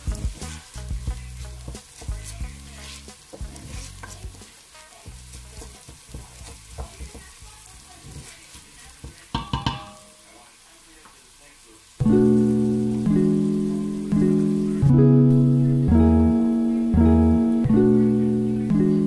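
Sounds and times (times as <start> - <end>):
onions frying in a pot: 0.0 - 19.0
wooden spoon scraping a pot: 0.2 - 4.4, 5.1 - 7.3, 7.9 - 9.1
spoon knocking against pot: 9.3 - 10.1.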